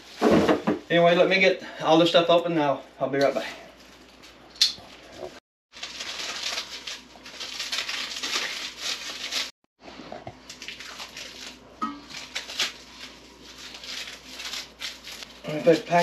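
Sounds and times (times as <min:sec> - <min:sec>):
plastic wrap crinkling: 0:05.7 - 0:16.0.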